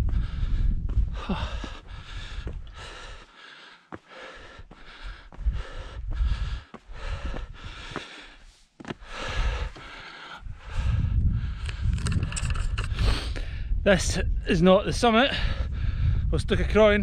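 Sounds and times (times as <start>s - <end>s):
man breathing hard: 0.0s - 13.8s, 15.3s - 16.3s.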